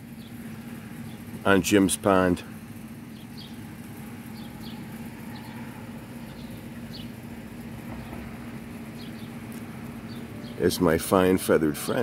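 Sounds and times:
small birds chirping: 0.0 - 12.0
steady low hum: 0.0 - 12.0.

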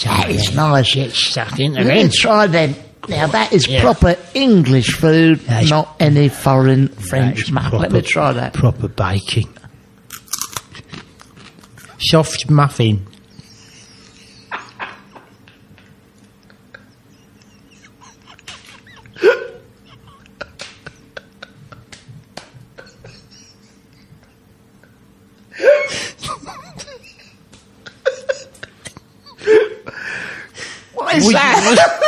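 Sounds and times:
man stifling laughter: 13.3 - 30.0.

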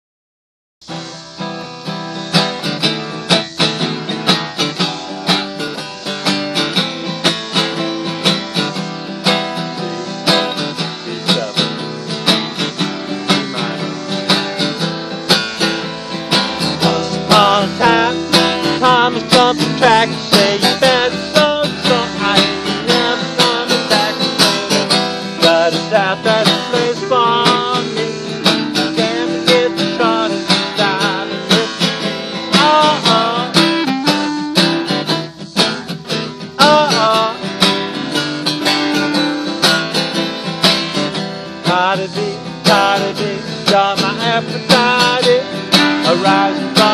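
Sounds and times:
acoustic guitars strumming chords: 0.8 - 46.9
clarinet playing wavering melody: 16.5 - 24.7, 25.4 - 31.8, 33.2 - 35.5.

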